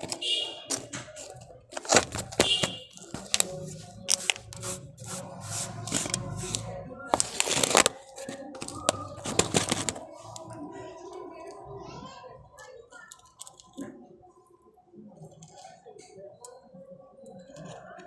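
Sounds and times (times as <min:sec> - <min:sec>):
potting mix scraping: 0:00.0 - 0:10.4
thin plastic crinkling: 0:00.0 - 0:10.6.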